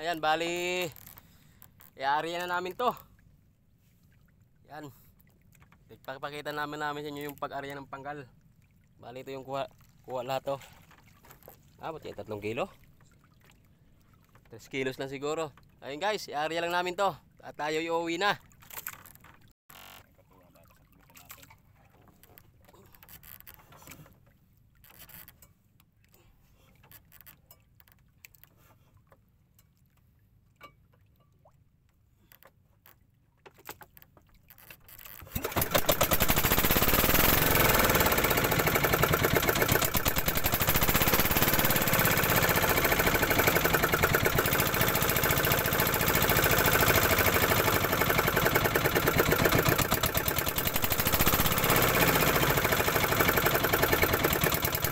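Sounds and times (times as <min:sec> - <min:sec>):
boat engine running: 0:00.0 - 0:02.8, 0:35.2 - 0:54.9.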